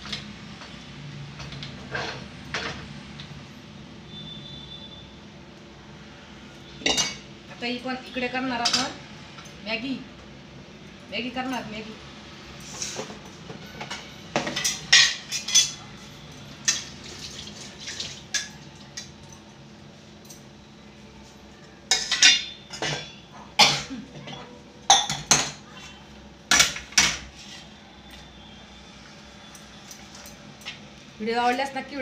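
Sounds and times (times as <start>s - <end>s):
steel utensils clinking: 6.8s - 7.3s, 13.8s - 17.2s, 21.9s - 25.6s.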